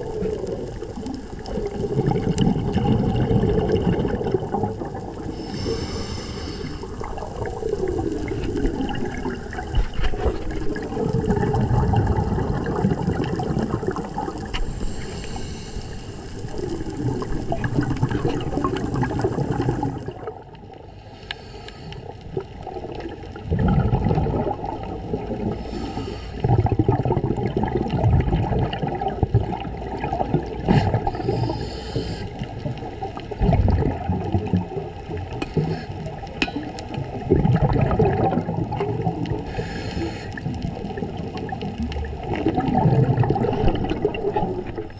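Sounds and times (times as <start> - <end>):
bubbles gurgling underwater: 0.0 - 15.4, 16.2 - 20.8, 22.0 - 44.9
diver breathing through regulator: 5.3 - 7.0, 14.6 - 16.6, 20.9 - 22.2, 25.5 - 26.6, 30.6 - 32.6, 35.4 - 36.2, 39.4 - 40.5.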